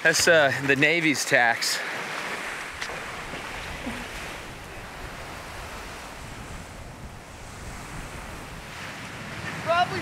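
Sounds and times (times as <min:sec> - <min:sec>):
shallow seawater washing: 0:00.0 - 0:10.0
wind buffeting microphone: 0:02.2 - 0:10.0.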